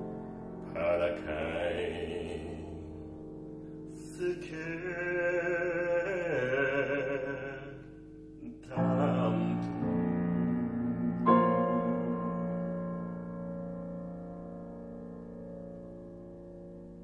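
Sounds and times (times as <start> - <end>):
piano chords: 0.0 - 17.0
man singing: 0.6 - 3.3, 3.9 - 13.2.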